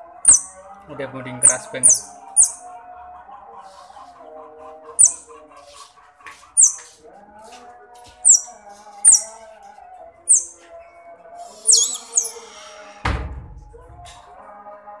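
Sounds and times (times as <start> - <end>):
baby otter chirping: 0.1 - 0.6, 1.4 - 2.7, 5.0 - 5.3, 6.6 - 6.8, 8.2 - 9.4, 10.3 - 10.6, 11.6 - 12.6.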